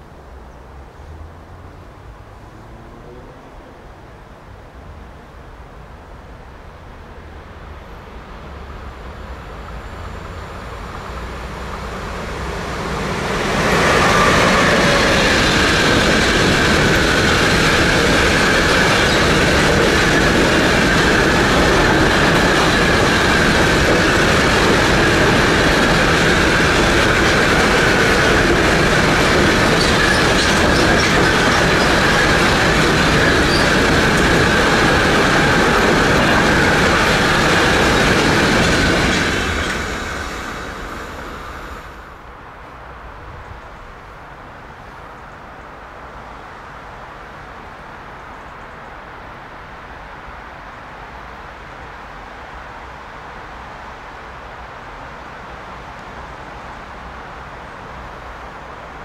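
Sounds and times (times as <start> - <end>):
freight train passing: 1.1 - 59.0
high-pitched wheel squeal: 33.2 - 34.7.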